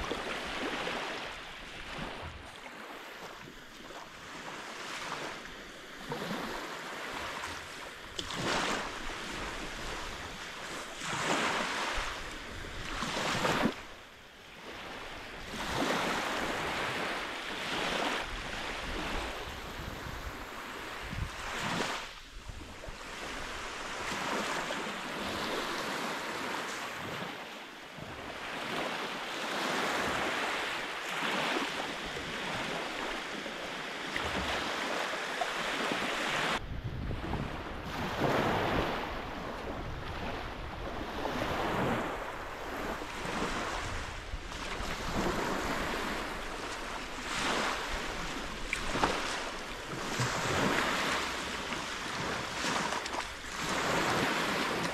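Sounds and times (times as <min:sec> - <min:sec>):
small waves on sand beach: 0:00.0 - 0:54.9
wind rumbling on microphone: 0:15.0 - 0:27.3, 0:36.0 - 0:54.9.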